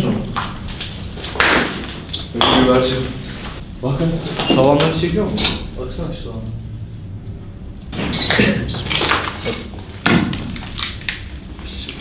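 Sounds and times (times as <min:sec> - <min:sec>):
debris knocking and scraping on concrete: 0:08.4 - 0:11.4.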